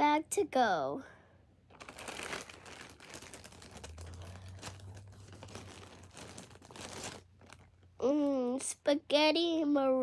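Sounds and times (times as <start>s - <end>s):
plastic bag crinkling: 1.7s - 8.0s.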